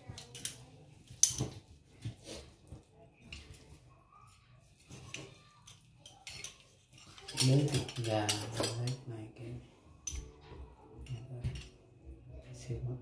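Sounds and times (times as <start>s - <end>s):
kitchenware knocks and clicks: 6.0s - 9.0s.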